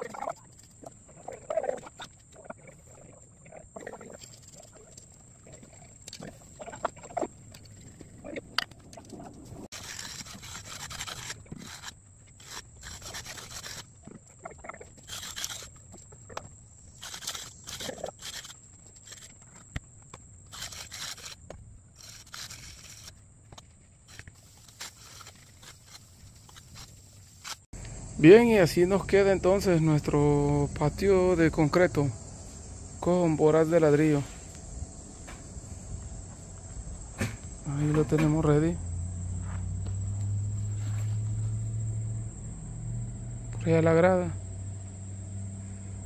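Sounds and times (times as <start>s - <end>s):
hand tool scraping concrete: 9.0s - 16.2s.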